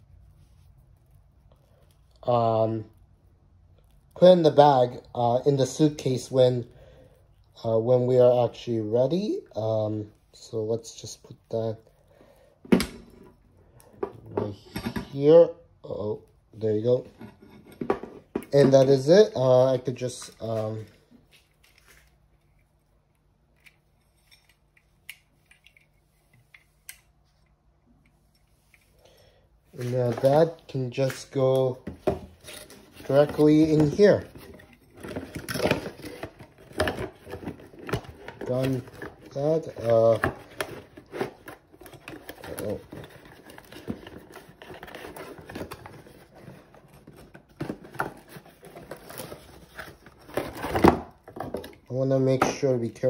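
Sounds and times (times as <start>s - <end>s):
rustling of objects being packed: 16.6s - 22.9s, 28.6s - 53.0s.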